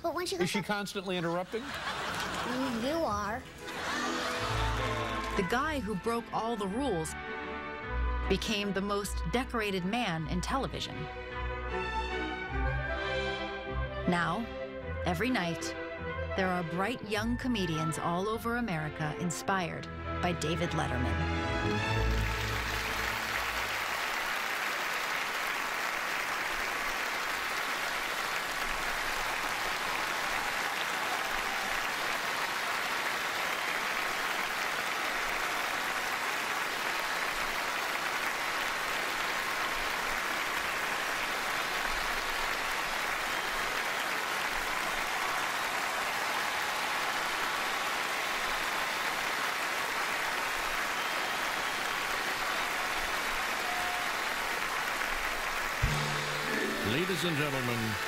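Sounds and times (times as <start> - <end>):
audience applauding: 0.0 - 5.9, 21.6 - 58.0.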